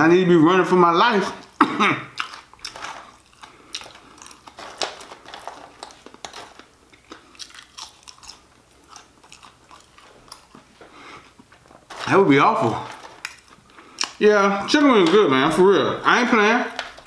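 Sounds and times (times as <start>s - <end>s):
person chewing crunchy fries: 1.3s - 14.3s.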